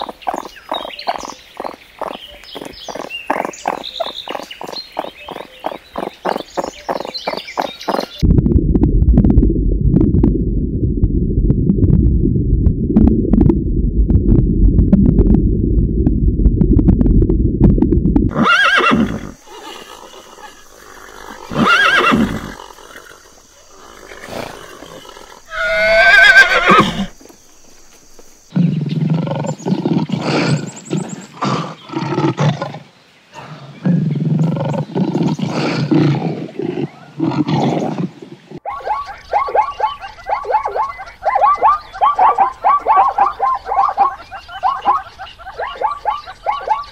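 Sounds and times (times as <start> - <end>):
low rumble: 8.2 - 18.3
horse whinnying: 18.3 - 23.2, 23.8 - 27.2.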